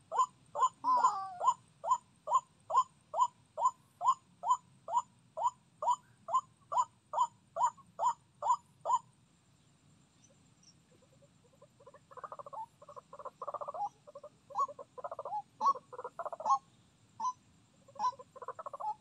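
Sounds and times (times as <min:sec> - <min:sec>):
bird short repeated call: 0:00.1 - 0:02.0
wavering bird call: 0:00.1 - 0:09.1, 0:10.9 - 0:19.0.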